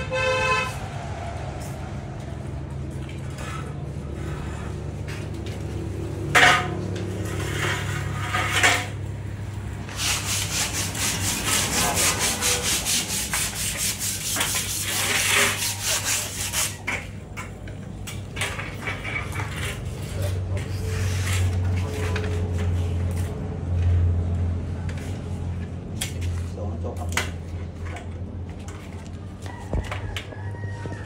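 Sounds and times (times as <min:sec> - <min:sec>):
rhythmic metal scraping: 0:03.3 - 0:17.5.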